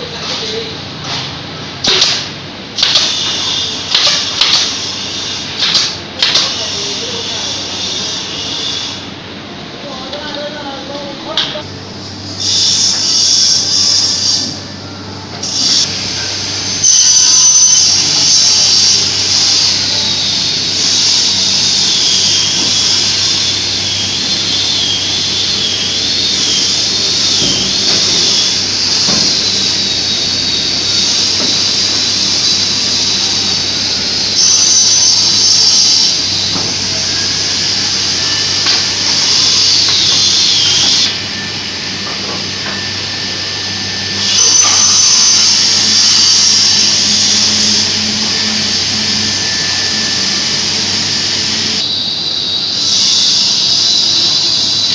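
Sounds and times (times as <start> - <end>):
power saw whining: 15.3 - 54.9.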